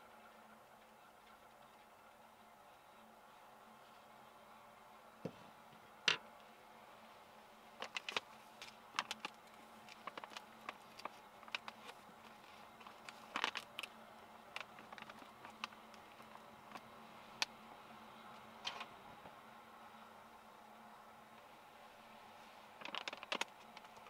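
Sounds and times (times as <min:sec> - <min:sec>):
packaging bag crinkling: 0:07.8 - 0:13.9, 0:14.5 - 0:16.4, 0:22.8 - 0:24.0.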